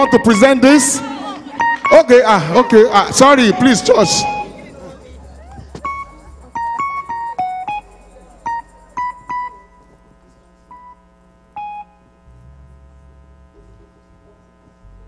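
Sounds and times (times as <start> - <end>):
electronic keyboard bright notes: 0.0 - 10.9
soft held keyboard chord: 1.6 - 15.0.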